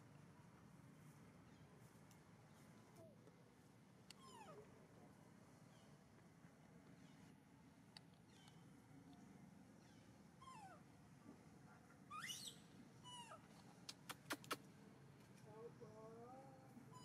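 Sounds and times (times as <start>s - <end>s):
squeaky macaque calls: 12.1s - 13.4s
sharp clicks: 13.8s - 14.6s.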